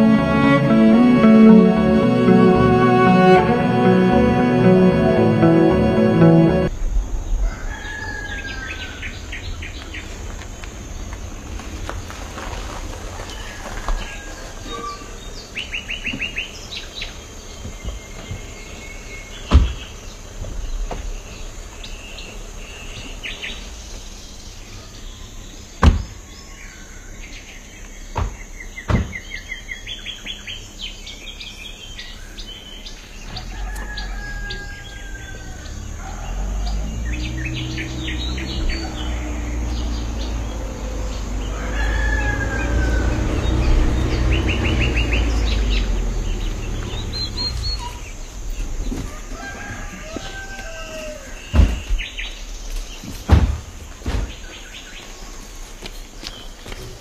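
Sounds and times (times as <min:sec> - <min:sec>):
birds chirping in trills: 0:00.0 - 0:57.0
rooster crowing: 0:07.4 - 0:09.3, 0:13.2 - 0:15.3, 0:33.3 - 0:48.2, 0:48.9 - 0:51.5.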